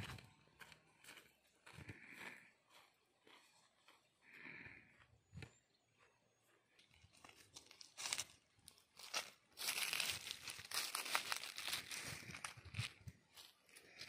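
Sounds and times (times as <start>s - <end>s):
footsteps crunching on dry leaves: 7.1s - 14.0s.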